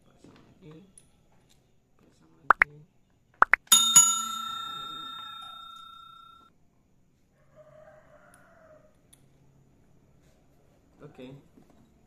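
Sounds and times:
bell chime ringing: 0:03.7 - 0:06.4.

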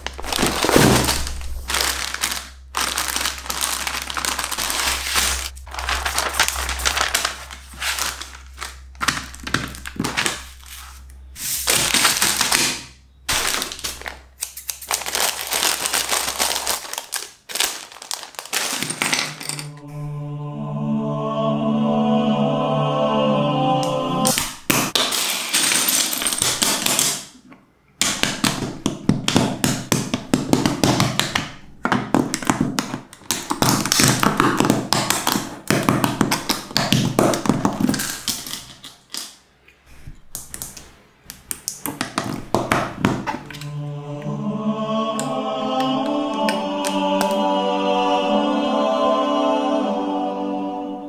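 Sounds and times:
choral chant music: 0:19.6 - 0:24.4, 0:43.4 - 0:51.0.

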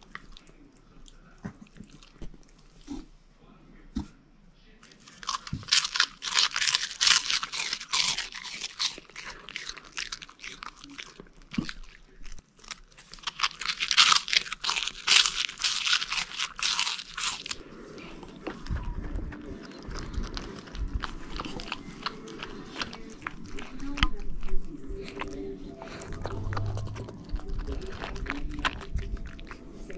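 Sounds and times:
puppy crunching cheese puffs: 0:04.8 - 0:29.9
puppy licking: 0:18.2 - 0:29.9.

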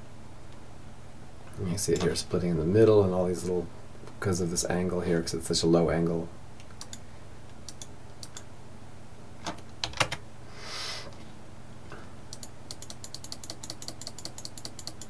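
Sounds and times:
soft rush of noise: 0:00.0 - 0:09.4
mouse and keyboard clicking: 0:06.6 - 0:07.0, 0:07.7 - 0:08.5, 0:12.3 - 0:15.0.

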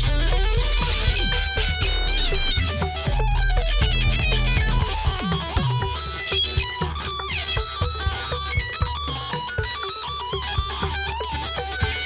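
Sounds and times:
low held notes: 0:00.0 - 0:06.0
electric guitar run with slide: 0:00.0 - 0:09.2.

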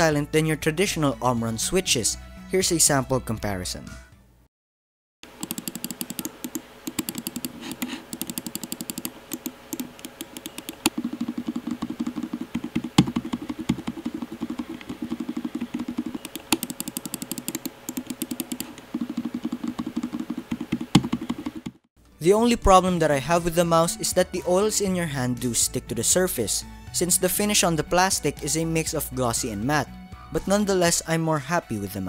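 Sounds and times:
mouse buttons clicking rapidly: 0:05.3 - 0:21.8.

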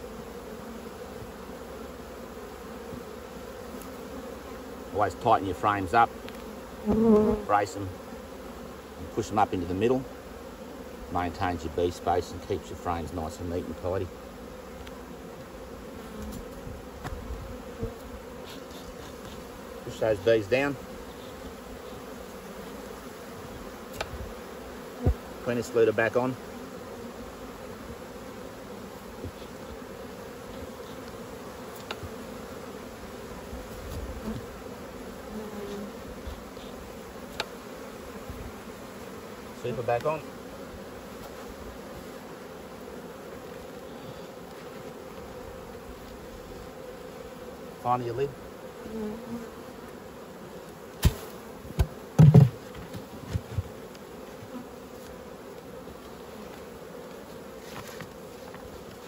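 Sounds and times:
honeybees buzzing: 0:00.0 - 0:59.0
hive lid knocking: 0:23.4 - 0:25.4, 0:51.0 - 0:54.6.

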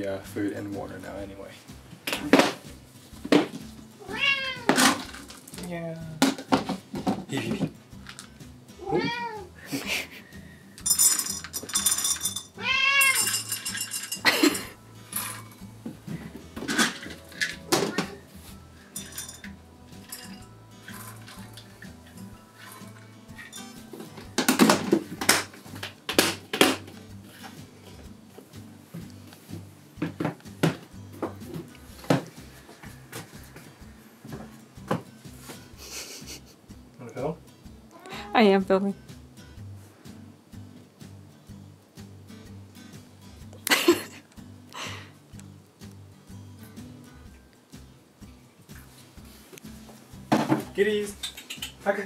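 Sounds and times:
quiet background music: 0:00.0 - 0:52.0
cat meowing: 0:04.0 - 0:04.8, 0:08.8 - 0:09.6, 0:12.6 - 0:13.3, 0:37.9 - 0:38.4
dishes and cupboards clattering: 0:06.2 - 0:08.2, 0:10.8 - 0:18.2, 0:18.9 - 0:21.7, 0:22.6 - 0:27.6, 0:50.3 - 0:51.8.

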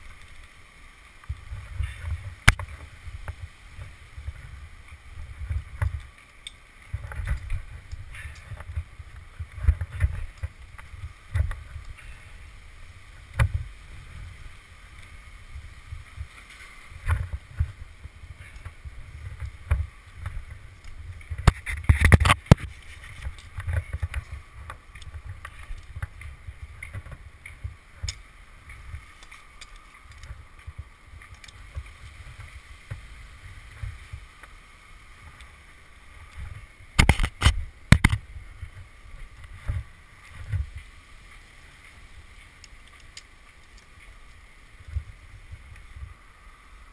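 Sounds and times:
climbing spikes knocking on bark: 0:21.2 - 0:33.0, 0:37.0 - 0:38.2.

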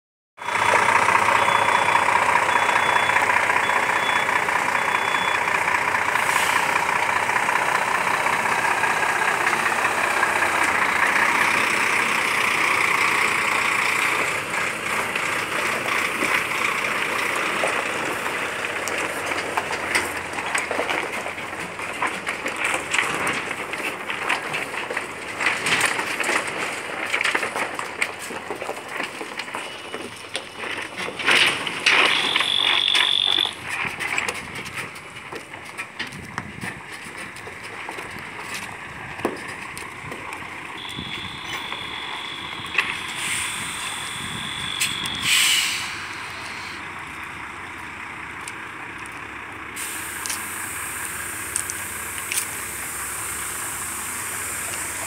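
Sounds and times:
faint beeps: 0:00.4 - 0:05.6, 0:32.0 - 0:33.6, 0:40.8 - 0:45.4
truck engine idling: 0:00.4 - 0:55.0.

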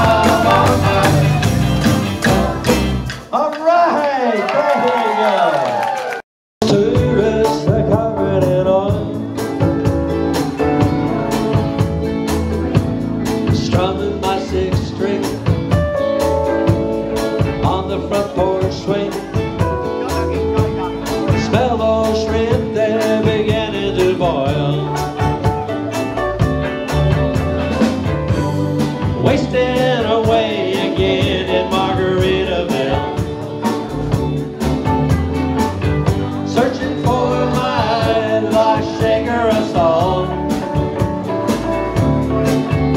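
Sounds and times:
person singing: 0:00.0 - 0:03.0, 0:06.6 - 0:11.9, 0:13.4 - 0:15.7, 0:17.4 - 0:25.4, 0:29.1 - 0:34.4, 0:36.0 - 0:41.0
drum beat: 0:00.0 - 0:03.3, 0:26.4 - 0:42.9
electric guitars: 0:00.0 - 0:03.3, 0:06.6 - 0:42.9.

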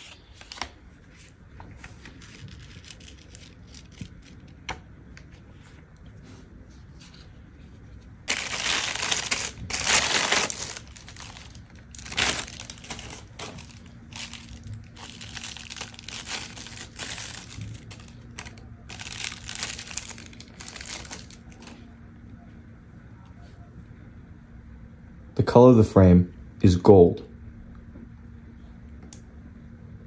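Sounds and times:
packaging crinkling: 0:01.8 - 0:04.7, 0:08.2 - 0:21.8.

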